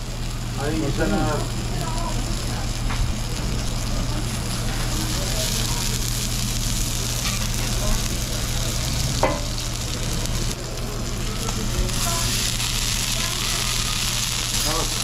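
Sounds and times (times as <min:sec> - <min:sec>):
deep fryer sizzling: 0:00.0 - 0:15.0
griddle frying sizzle: 0:00.0 - 0:15.0.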